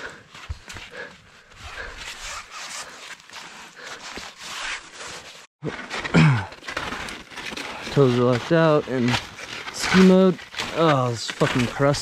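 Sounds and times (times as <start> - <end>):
hard breathing: 0.0 - 4.4
clothing and gear rustling: 0.1 - 12.0
person groaning: 6.2 - 6.5.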